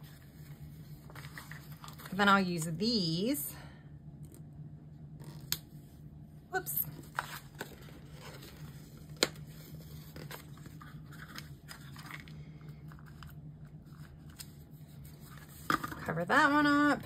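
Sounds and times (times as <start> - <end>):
paper crinkling: 7.0 - 16.1.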